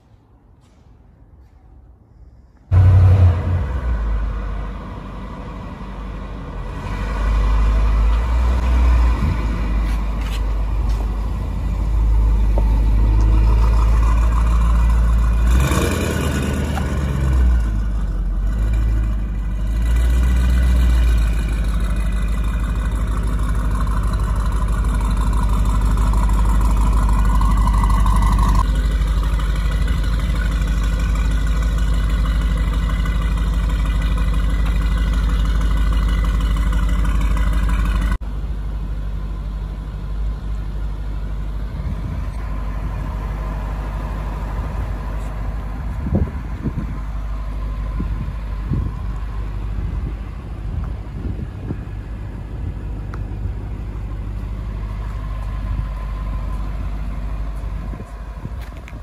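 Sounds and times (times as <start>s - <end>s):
car engine revving: 2.7s - 10.0s, 11.6s - 33.6s.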